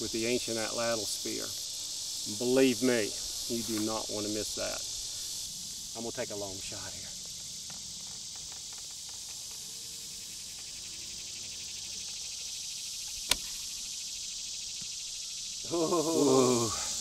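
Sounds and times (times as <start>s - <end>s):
insects chirring: 0.0s - 17.0s
bow shot snap: 13.1s - 13.8s.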